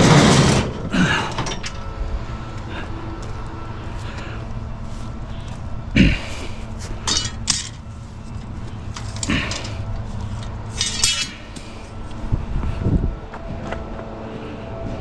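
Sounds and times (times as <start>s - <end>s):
wire shelving clattering: 0.0s - 1.8s, 7.0s - 7.8s, 10.7s - 11.5s
steady low hum: 0.0s - 15.0s.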